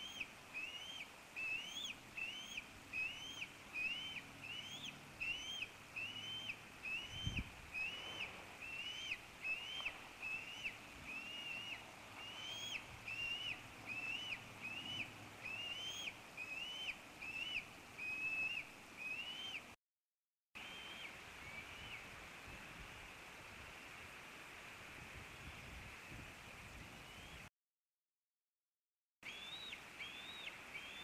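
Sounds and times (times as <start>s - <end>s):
eaglet peeping: 0.0s - 19.7s, 29.2s - 31.0s
faint hiss: 0.0s - 19.8s, 20.6s - 27.5s.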